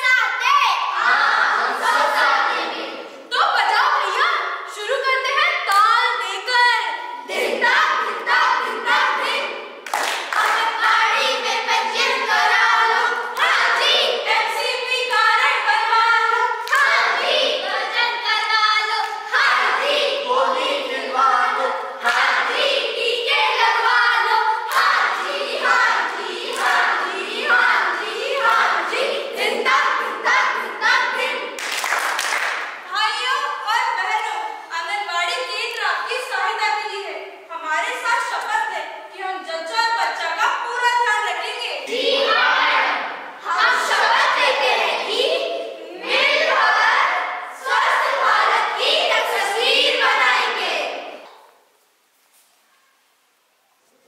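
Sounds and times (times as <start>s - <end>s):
young voices singing in chorus: 0.8s - 3.3s, 6.9s - 31.6s, 41.8s - 51.4s
rhythmic hand clapping: 9.8s - 11.3s, 16.6s - 17.0s, 24.7s - 27.6s, 31.6s - 32.8s.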